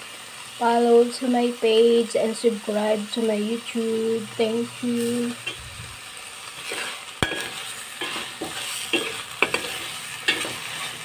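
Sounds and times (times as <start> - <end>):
light frying sizzle: 0.0 - 11.0
metal spoon scraping pot: 6.6 - 11.0.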